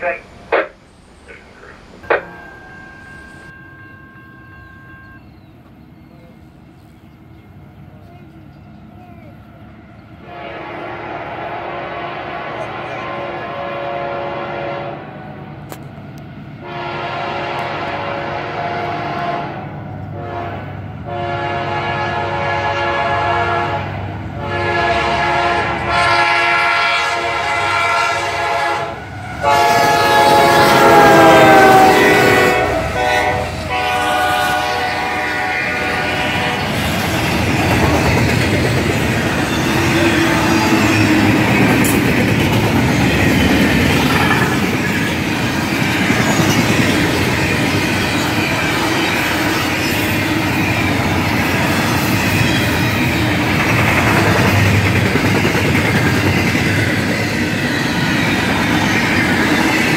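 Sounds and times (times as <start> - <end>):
train cars rumbling on rails: 0.0 - 59.9
locomotive air horn: 10.2 - 15.3, 16.6 - 36.8.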